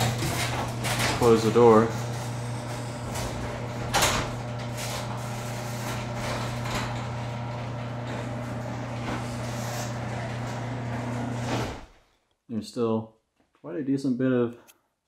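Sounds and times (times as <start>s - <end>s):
garage door opener humming: 0.0s - 12.0s.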